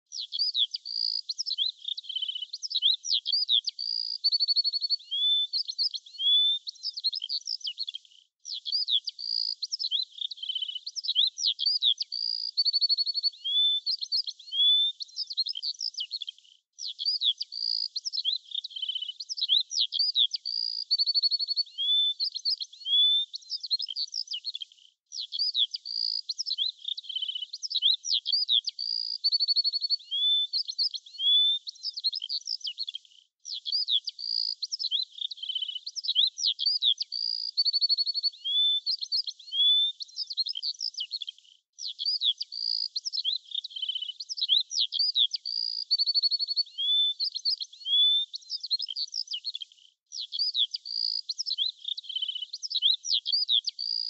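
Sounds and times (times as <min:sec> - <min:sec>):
songbirds chirping and singing: 0:00.0 - 0:32.9, 0:33.5 - 0:54.0.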